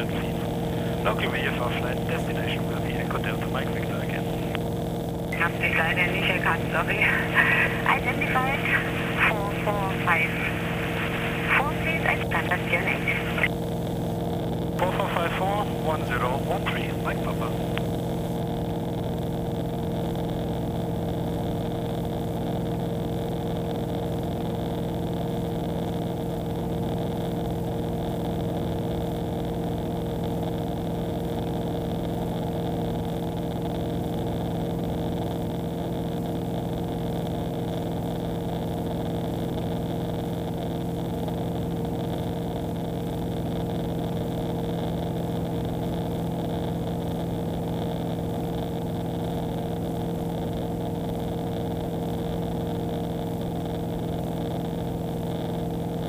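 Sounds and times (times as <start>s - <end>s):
light aircraft engine droning: 0.0s - 4.6s, 5.4s - 13.5s, 14.8s - 18.3s.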